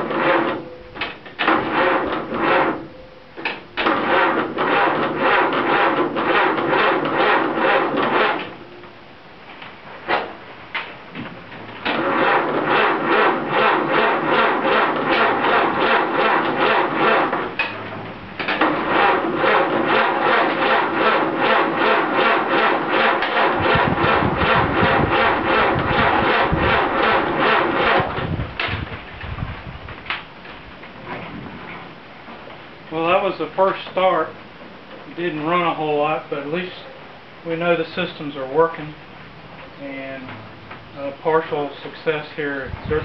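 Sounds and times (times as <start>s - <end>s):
engine cranking on starter: 0.0s - 8.6s, 10.0s - 29.4s
engine firing: 0.0s - 8.7s, 10.0s - 30.2s.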